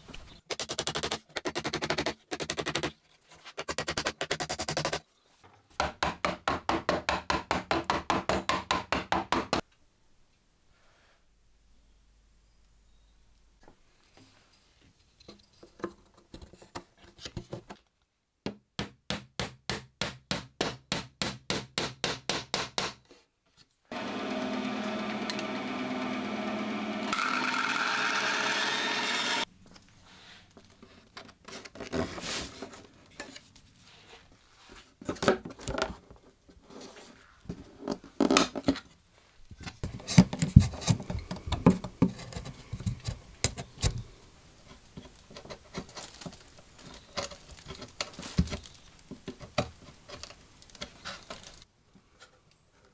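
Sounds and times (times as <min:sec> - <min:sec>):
power tool running: 0:23.9 - 0:29.4.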